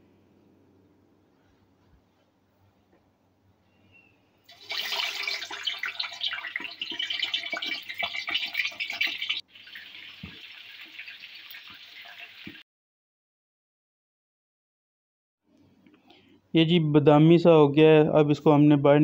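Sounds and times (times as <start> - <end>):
chicken sizzling in hot oil: 4.5 - 12.6.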